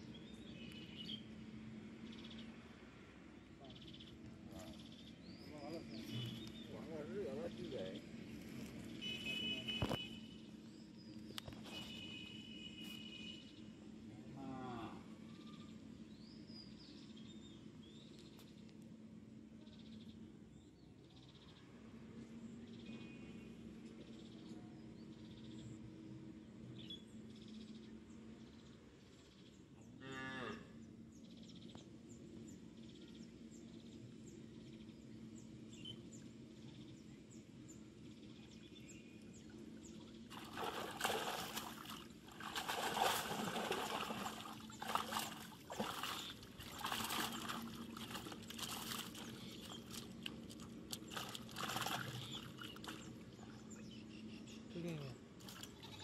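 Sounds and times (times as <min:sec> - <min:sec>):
low steady hum: 0:00.0 - 0:56.0
water splashing: 0:40.2 - 0:53.3.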